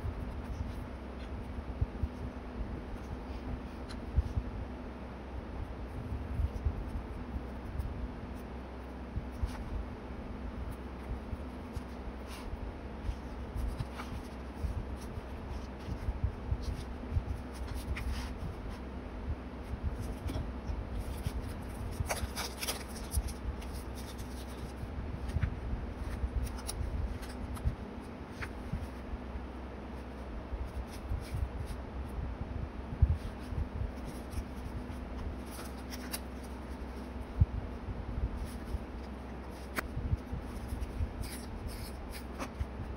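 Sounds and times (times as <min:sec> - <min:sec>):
steady low hum: 0:00.0 - 0:42.9
paper rustling: 0:10.7 - 0:18.9, 0:19.6 - 0:29.0, 0:33.2 - 0:37.2, 0:38.4 - 0:42.9.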